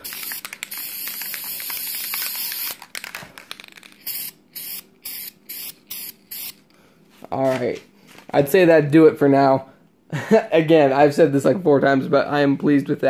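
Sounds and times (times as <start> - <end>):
aerosol spray can hissing: 0.0 - 2.8, 4.0 - 6.6.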